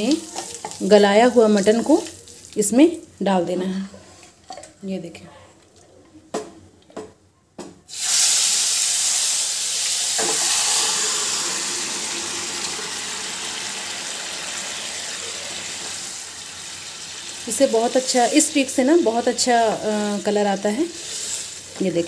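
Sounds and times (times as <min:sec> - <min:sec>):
meat sizzling in hot oil: 0:00.0 - 0:02.5, 0:07.9 - 0:22.0.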